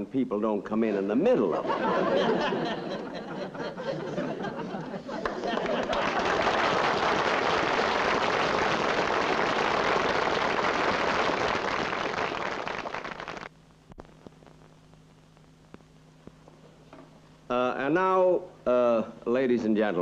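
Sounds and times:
faint low hum: 0.0 - 20.0
audience applauding: 4.6 - 13.5.

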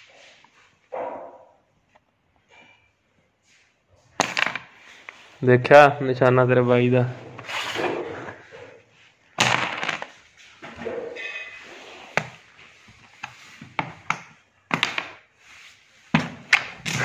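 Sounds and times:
wooden pieces clacking on board: 4.2 - 5.1, 9.4 - 10.2, 12.1 - 15.2, 16.1 - 17.0.

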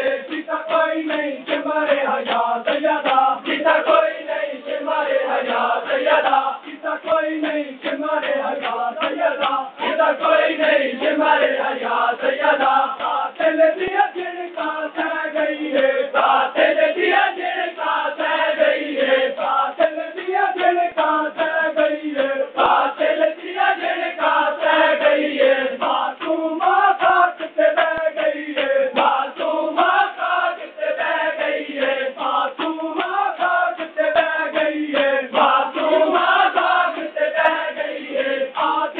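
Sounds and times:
men chanting in unison: 0.0 - 38.9
palms slapping chests: 0.3 - 4.0.

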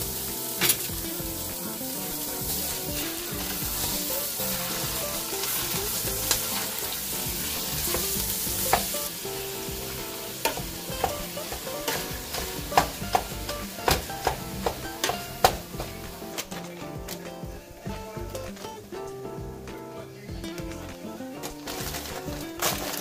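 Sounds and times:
utensil stirring meat: 0.0 - 17.1, 21.4 - 23.0
meat sizzling in a pot: 0.0 - 17.2, 21.4 - 23.0
utensil knocking on a pot: 9.8 - 17.1.

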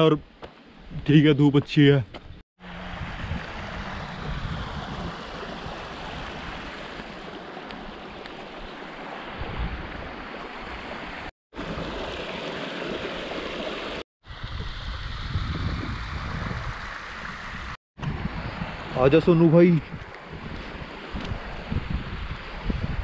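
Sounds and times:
wind rumble on microphone: 2.2 - 7.2, 9.3 - 10.8, 14.2 - 23.0
stream running over rocks: 2.6 - 14.5.

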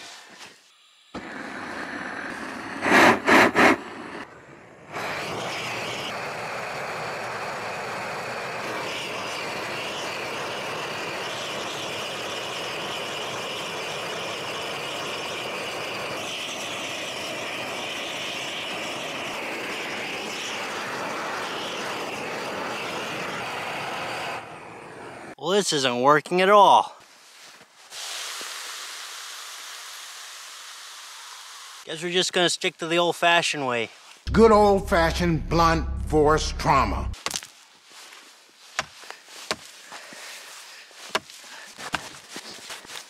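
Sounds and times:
gas torch flame hissing: 0.0 - 25.4, 27.9 - 31.9.

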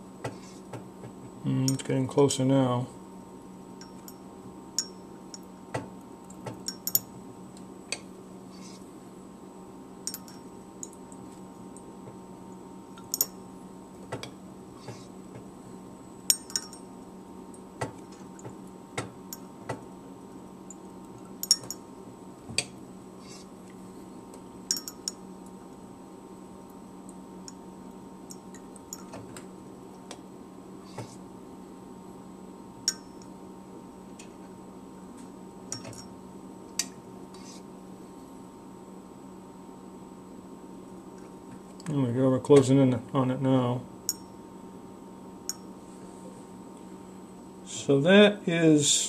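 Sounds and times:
steady low hum: 0.0 - 49.0
light glass clinks: 4.8 - 5.4, 10.1 - 10.4, 16.3 - 16.8, 21.4 - 21.8, 24.7 - 25.2.

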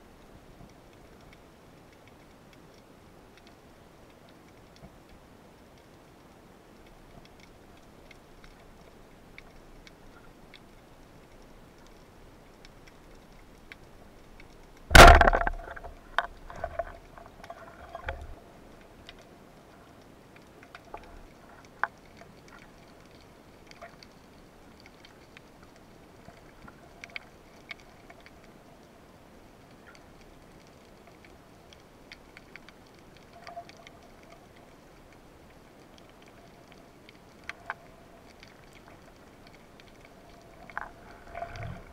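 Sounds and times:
faint clicks: 0.1 - 41.9
speargun firing crack: 14.9 - 15.7.

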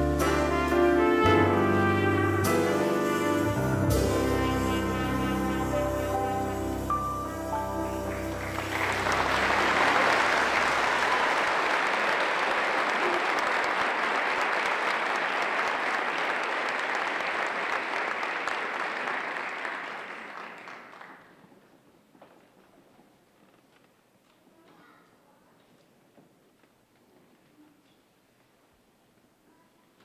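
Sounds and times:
large audience applauding: 6.4 - 21.5.

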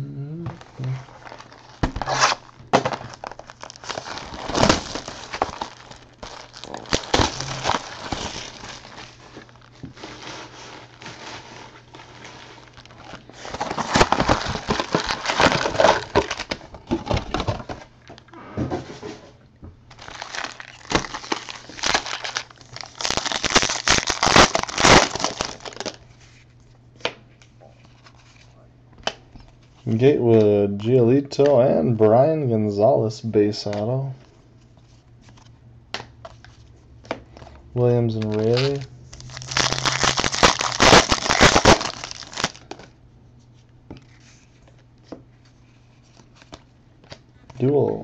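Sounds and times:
low hum: 0.0 - 1.4, 4.7 - 9.7
box being opened: 0.6 - 8.8
foil packs crinkling and tearing: 0.6 - 17.9, 19.9 - 26.0, 38.1 - 42.9.

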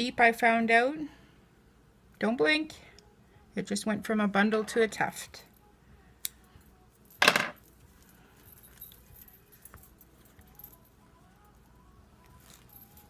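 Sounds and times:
bangles clinking: 6.4 - 13.0.

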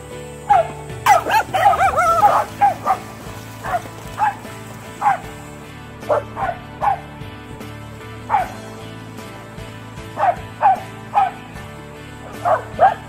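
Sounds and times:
dog barking high-pitched: 0.5 - 4.4, 5.0 - 5.3, 6.1 - 7.0, 8.3 - 8.6, 10.2 - 11.4, 12.4 - 13.0.

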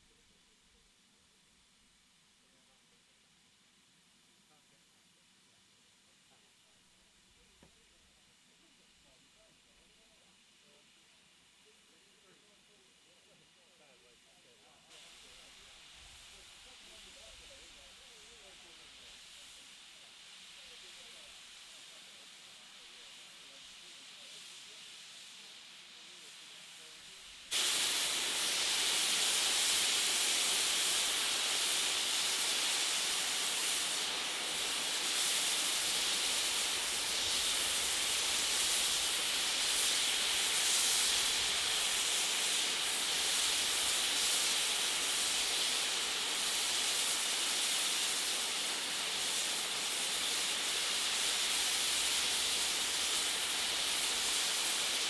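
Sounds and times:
steam blowing off safety valves: 14.6 - 55.0.

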